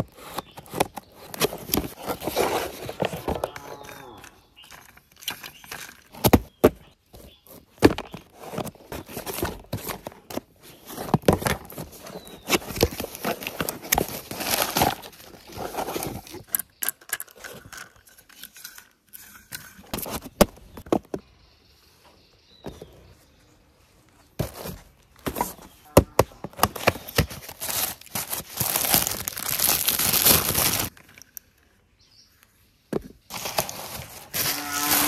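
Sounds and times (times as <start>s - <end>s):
packing material rustling: 0.0s - 4.1s, 7.8s - 16.4s, 26.2s - 31.0s, 33.3s - 35.0s
cardboard boxes handled: 0.0s - 16.6s, 19.9s - 21.3s, 22.5s - 30.9s, 32.9s - 35.0s.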